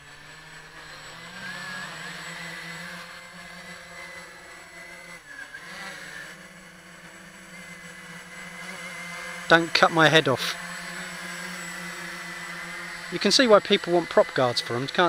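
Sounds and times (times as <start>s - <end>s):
quadcopter motors whirring: 0.0s - 15.0s.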